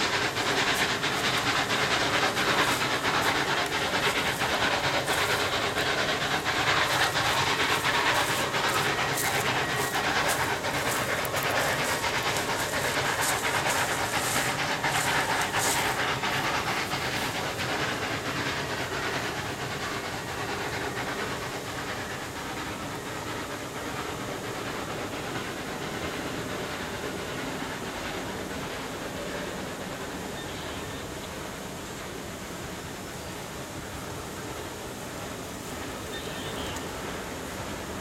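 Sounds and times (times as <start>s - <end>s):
steam hissing: 0.0s - 38.0s
steam locomotive exhaust chuffs: 0.0s - 38.0s.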